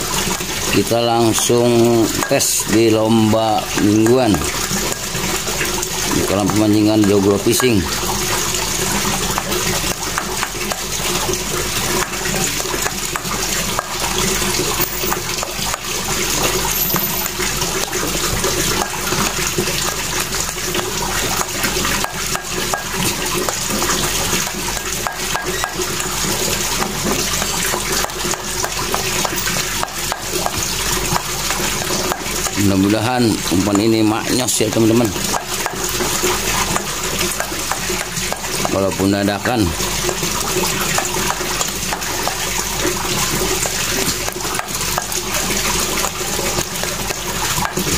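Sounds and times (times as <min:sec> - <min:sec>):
scoop scraping steel bowl: 0:16.6 - 0:17.7.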